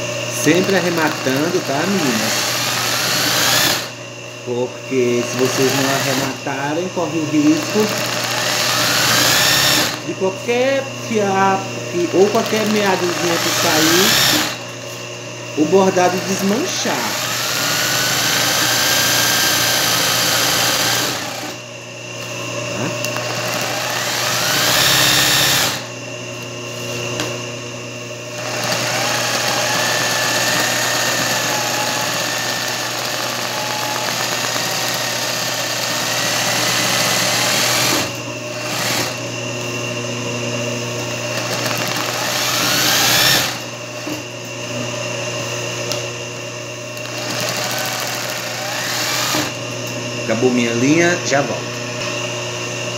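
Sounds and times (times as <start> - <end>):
sewing machine motor whine: 0.0 - 14.7, 15.6 - 21.6, 22.8 - 25.9, 28.3 - 39.2, 41.3 - 44.2, 47.0 - 49.6.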